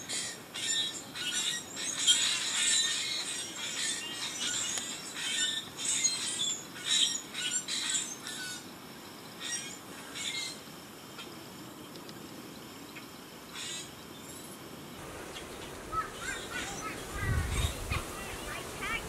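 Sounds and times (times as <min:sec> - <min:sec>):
birds calling: 0:15.0 - 0:19.0.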